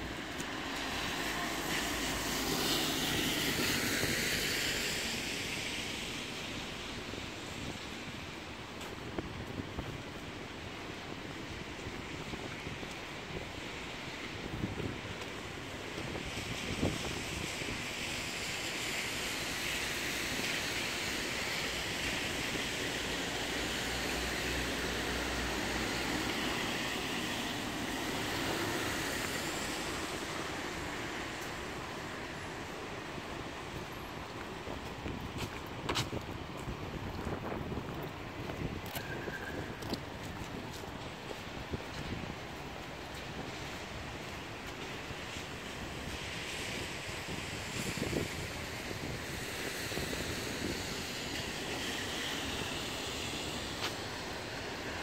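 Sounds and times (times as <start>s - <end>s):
car tyres hissing on wet road: 0.0s - 55.0s
rain hissing: 42.9s - 55.0s.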